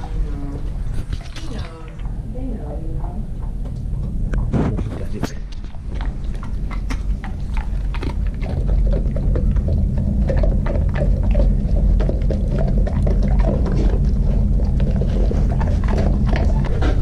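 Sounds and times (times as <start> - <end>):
steady low rumble: 0.0 - 17.0
dog licking and mouth smacks: 0.9 - 2.1, 5.2 - 17.0.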